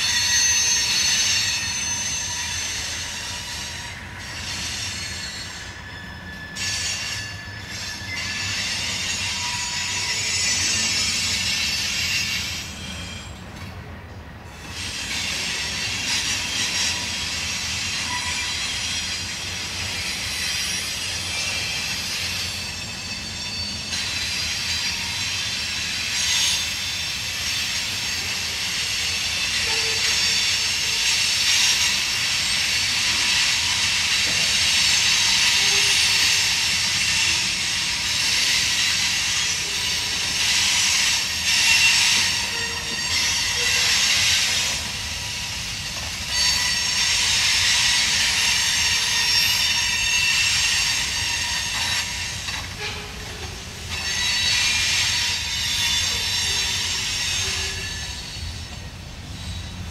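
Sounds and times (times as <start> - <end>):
wheels screeching and hissing: 0.0 - 13.4, 14.5 - 59.9
train wheels on rails: 0.0 - 59.9.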